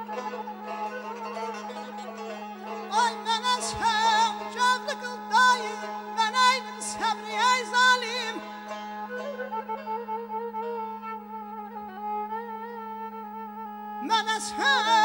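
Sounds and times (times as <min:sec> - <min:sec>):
plucked lute melody: 0:00.0 - 0:11.8.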